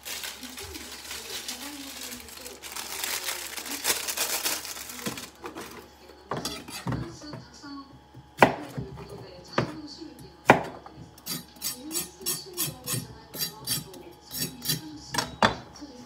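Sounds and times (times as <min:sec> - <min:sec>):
faint background music or voices: 0:00.1 - 0:16.0
knife chopping on plastic board: 0:08.1 - 0:09.8, 0:10.4 - 0:13.8.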